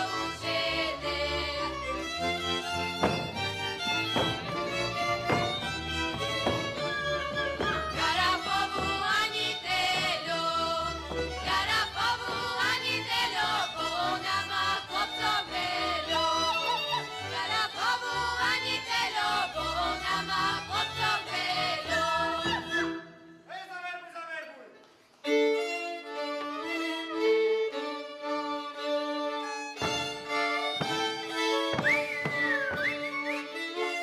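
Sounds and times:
group singing: 0:00.0 - 0:02.0, 0:05.2 - 0:23.0
folk string band playing: 0:00.0 - 0:23.3, 0:25.2 - 0:34.0.

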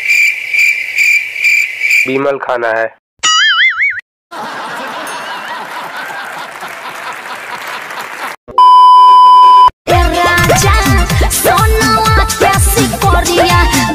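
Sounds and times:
studio audience applauding: 0:04.4 - 0:08.4
steady test-pattern beep: 0:08.6 - 0:09.7
upbeat electronic music: 0:09.9 - 0:13.9.

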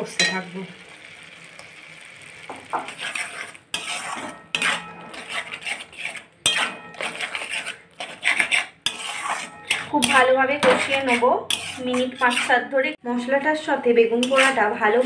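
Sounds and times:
steel spatula scraping metal pan: 0:02.6 - 0:13.0, 0:14.1 - 0:15.0.

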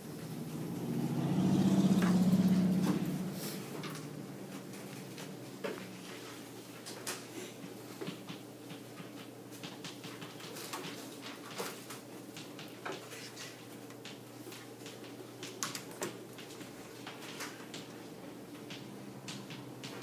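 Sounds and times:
steady low hum: 0:00.0 - 0:10.1.

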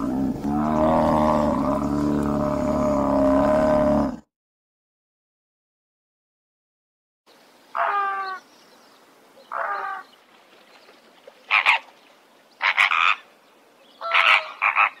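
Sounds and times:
flamingos honking: 0:14.0 - 0:15.0.

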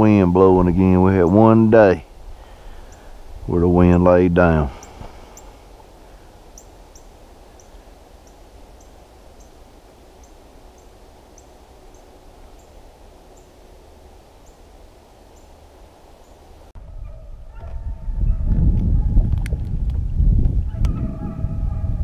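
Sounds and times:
wind rumble on microphone: 0:00.0 - 0:05.2, 0:16.8 - 0:22.0.

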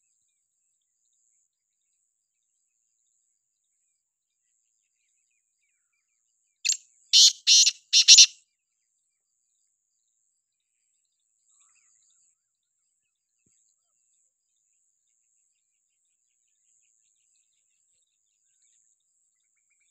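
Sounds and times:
bird calling high notes: 0:07.2 - 0:08.3.

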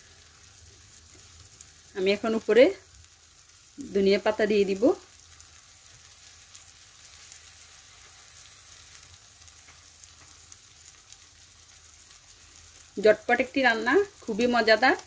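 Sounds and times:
curry sizzling in a frying pan: 0:00.0 - 0:15.0.

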